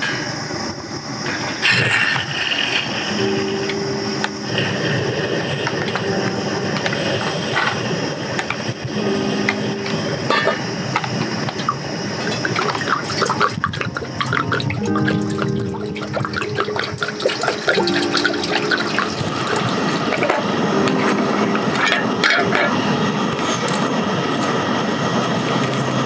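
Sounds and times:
gas stove hissing: 0.0s - 26.0s
water poured into metal pot: 10.9s - 20.4s.

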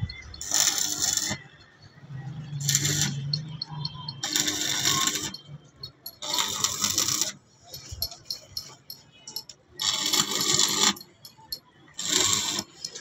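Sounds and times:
welding arc crackling and sizzling: 0.4s - 1.5s, 2.6s - 3.4s, 4.2s - 5.4s, 6.2s - 7.4s, 9.4s - 11.1s, 12.0s - 13.0s.

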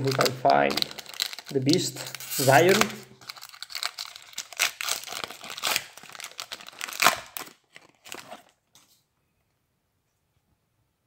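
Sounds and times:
foil wrapper crinkling and tearing: 0.0s - 8.6s.

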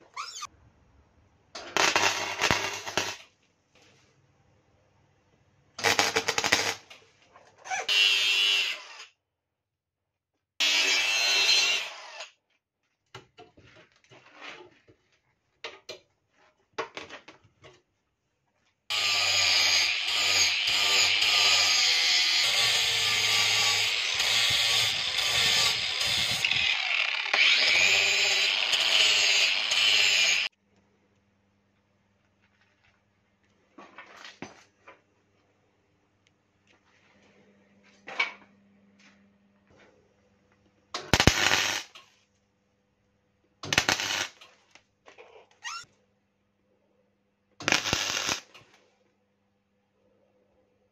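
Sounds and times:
arc welding crackling: 1.8s - 3.2s, 5.8s - 6.8s, 41.0s - 42.0s, 43.7s - 44.5s, 47.6s - 48.6s
angle grinder grinding steel: 18.9s - 30.5s.

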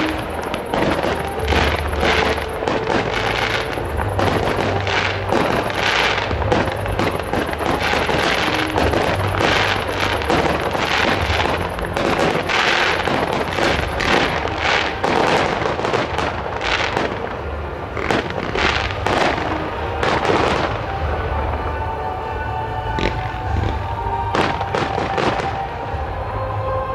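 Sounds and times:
fireworks bangs and crackles: 0.0s - 26.9s.

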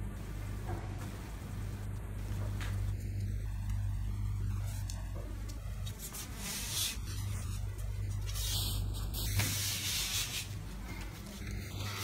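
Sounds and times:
steady low hum: 0.0s - 12.0s
hands rubbing foam sheet: 5.8s - 12.0s.

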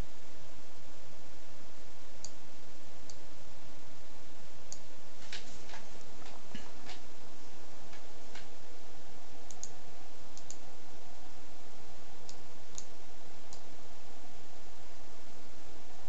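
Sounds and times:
steady background hiss: 0.0s - 16.0s
mouse buttons clicking: 10.4s - 10.6s.

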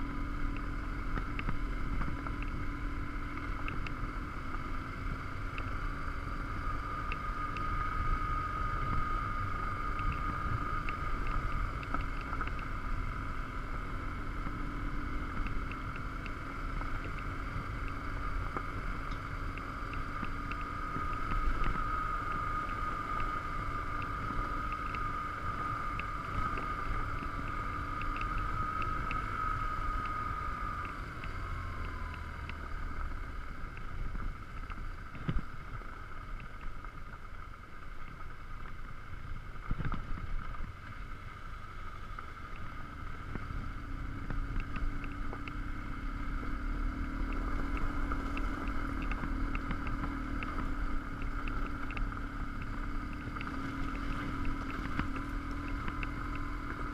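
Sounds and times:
high steady whine: 0.0s - 56.9s
motorcycle engine running: 0.0s - 56.9s
faint ticking: 41.9s - 56.9s.

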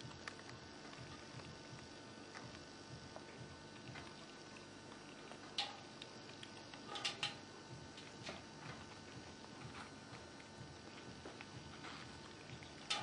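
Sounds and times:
claws tapping on a metal bowl: 5.4s - 8.9s, 11.2s - 13.0s.

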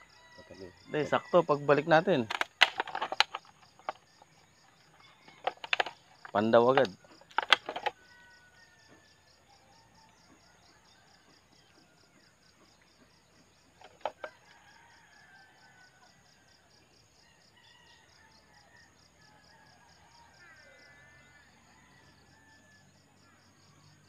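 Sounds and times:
insects chirring: 0.0s - 24.0s
sharp clicks: 2.2s - 4.1s, 5.3s - 8.0s.

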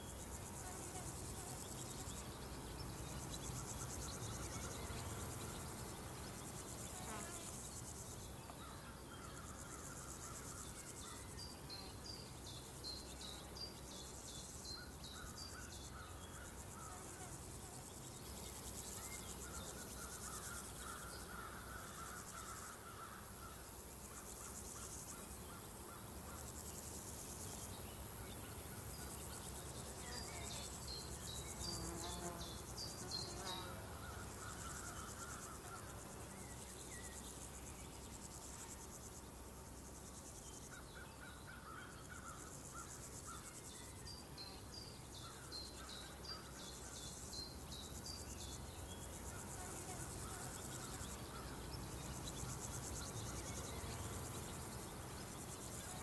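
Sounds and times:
loud high insect buzzing: 0.0s - 8.3s, 15.7s - 40.4s
crickets trilling: 0.0s - 56.0s.

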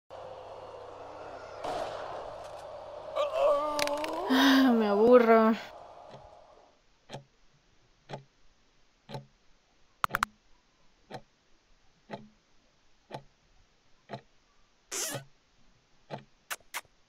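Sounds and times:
clock ticking: 7.1s - 7.3s, 8.0s - 8.4s, 9.0s - 9.4s, 10.0s - 10.4s, 11.1s - 11.3s, 12.1s - 12.4s, 13.1s - 13.4s, 14.0s - 14.4s, 16.1s - 16.3s
sharp double click: 10.0s - 10.3s, 16.5s - 16.9s.

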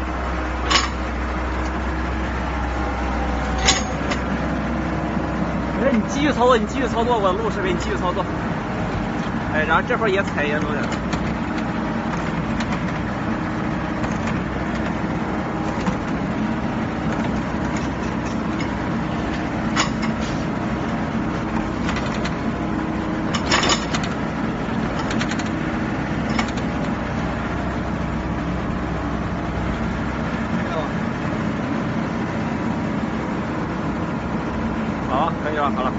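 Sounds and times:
diesel engine running: 0.0s - 35.9s.

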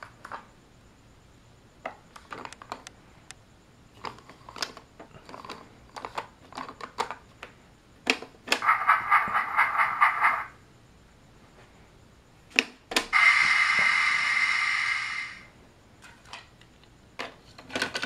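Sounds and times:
electronic pulsing sound effect: 8.6s - 10.6s, 13.1s - 15.5s.

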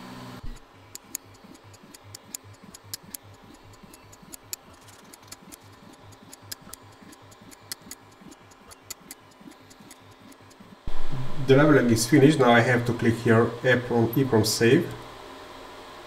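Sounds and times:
stepper motors humming: 0.0s - 16.0s
printer probe clicking: 0.4s - 10.8s.

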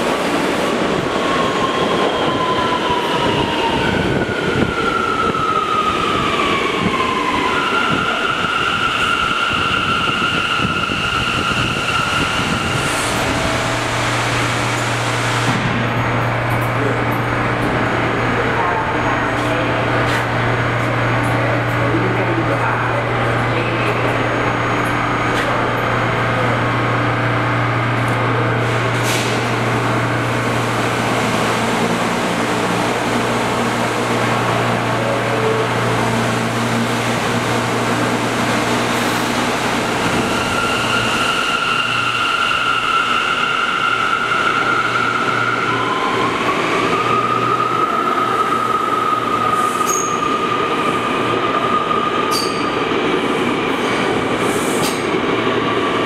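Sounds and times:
subway train humming: 0.0s - 56.0s.

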